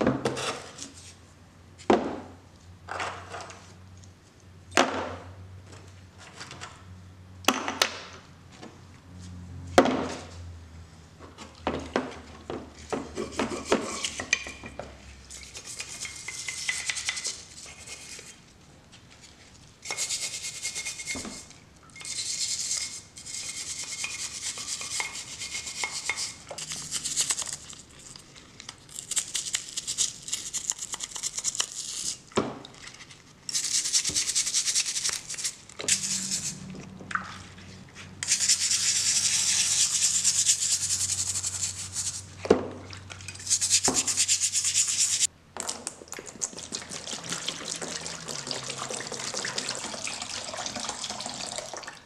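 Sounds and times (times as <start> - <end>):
stiff brush scrubbing metal in water: 22.2 - 27.4, 35.9 - 42.3, 42.9 - 45.3.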